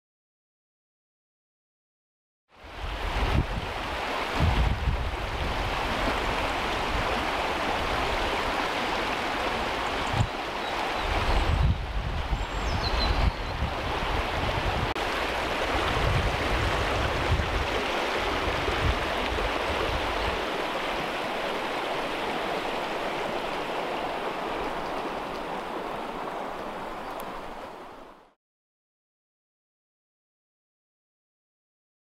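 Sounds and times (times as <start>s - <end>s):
wind rumble on microphone: 2.6s - 10.4s, 11.0s - 27.6s
stream babbling over stones: 2.8s - 28.3s.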